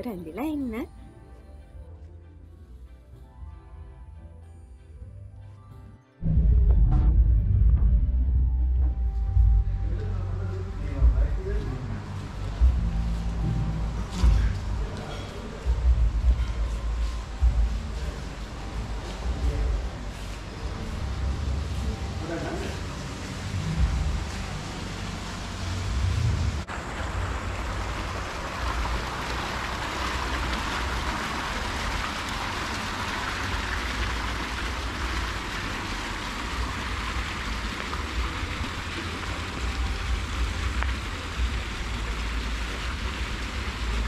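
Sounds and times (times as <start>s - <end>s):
low unsteady rumble: 6.2s - 22.2s, 22.9s - 31.4s
fountain water splashing: 10.6s - 44.0s.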